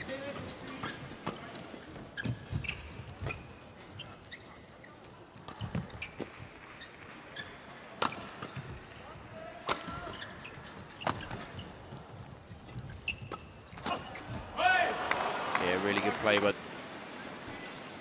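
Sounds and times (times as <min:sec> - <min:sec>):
shoes squeaking on court: 0:00.0 - 0:14.6
rackets striking shuttlecock: 0:09.6 - 0:10.2.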